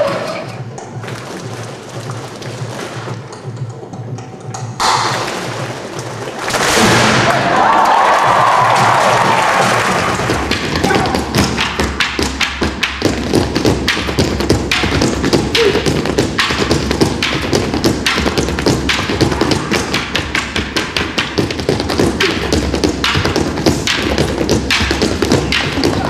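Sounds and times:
wooden poles knocking and clacking: 7.9 - 26.0.

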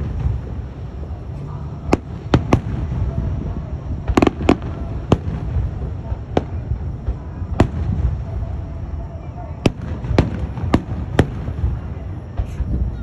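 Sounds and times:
fireworks bangs: 0.0 - 13.0.

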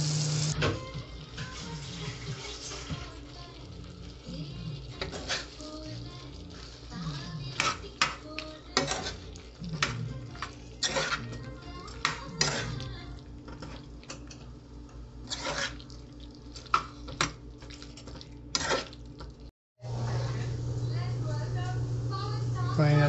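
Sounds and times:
metal spatula scraping a pan: 4.9 - 5.8, 6.5 - 12.9, 15.2 - 15.9, 18.5 - 19.0.

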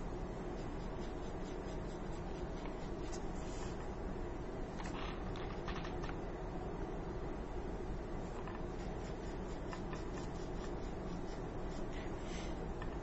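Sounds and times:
low background hum: 0.0 - 13.0
pencil scratching on cardboard: 0.4 - 3.8, 8.4 - 12.1.

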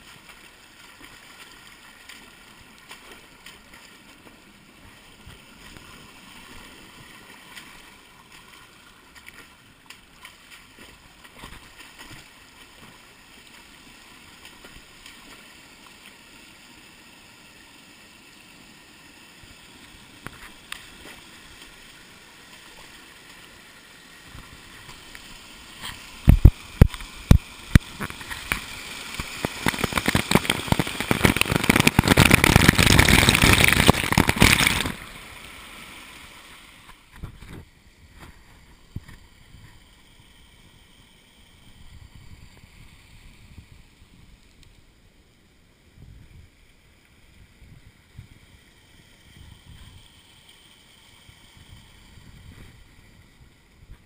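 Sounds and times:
close splashing and scraping: 0.0 - 13.7, 24.3 - 39.7
stream trickling: 0.0 - 54.0.

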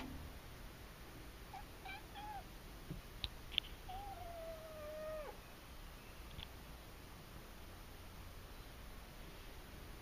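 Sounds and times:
kitten meowing: 1.5 - 2.5, 3.9 - 5.4.

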